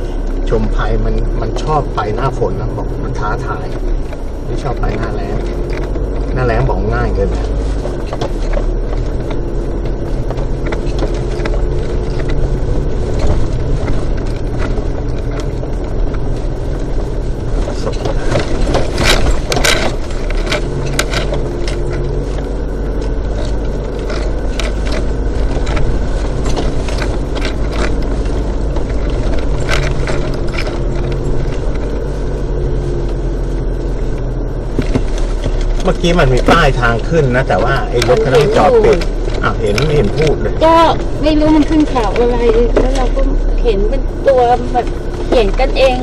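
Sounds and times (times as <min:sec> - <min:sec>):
vehicle engine running: 0:00.0 - 0:46.0
knocks and rattles: 0:03.2 - 0:46.0.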